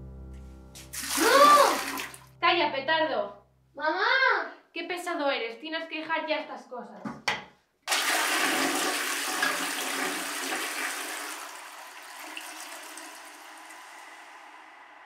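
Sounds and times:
toilet flushing: 0.9s - 2.3s, 7.9s - 15.0s.

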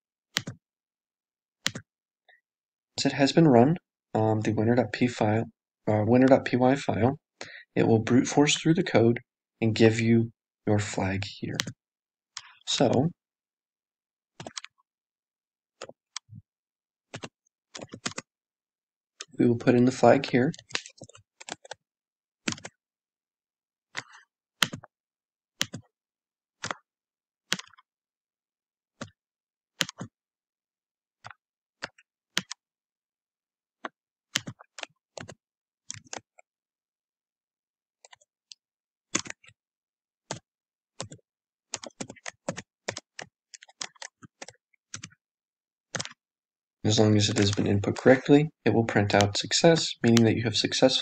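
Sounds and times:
keyboard keystroke clicks: 0.4s - 0.6s, 1.6s - 1.9s.

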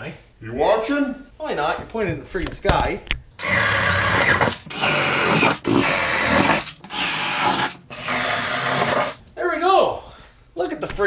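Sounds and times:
power drill boring through wood: 3.4s - 9.2s.

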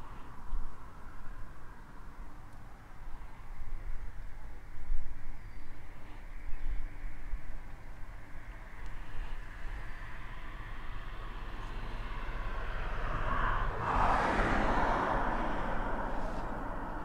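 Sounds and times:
car driving past: 9.7s - 17.0s.

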